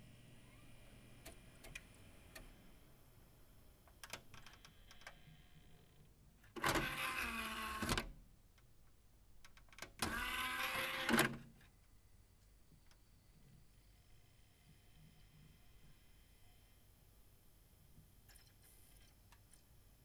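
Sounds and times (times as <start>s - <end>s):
disc tray motor whine: 10.1s - 11.4s.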